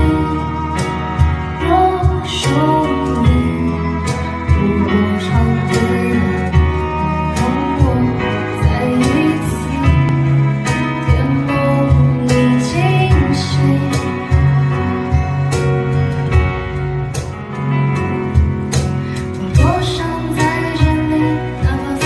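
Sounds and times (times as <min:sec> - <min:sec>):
woman singing: 0:00.0 - 0:15.0, 0:19.4 - 0:22.0
live band playing slow pop: 0:00.0 - 0:22.0
violin: 0:00.0 - 0:22.0.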